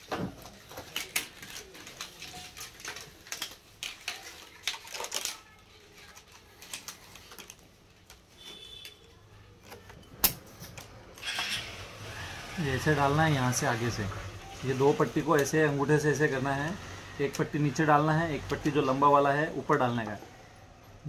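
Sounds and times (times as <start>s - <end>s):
plastic strapping clicking and rattling: 0.0s - 11.2s.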